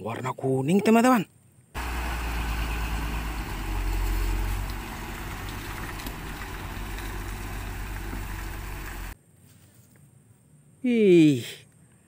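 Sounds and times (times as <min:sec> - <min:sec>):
diesel truck engines running: 0:01.8 - 0:09.2.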